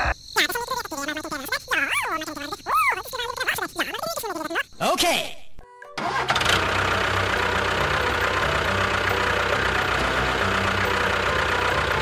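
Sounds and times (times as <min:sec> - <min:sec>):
motor chugging rattle: 0:06.0 - 0:12.0.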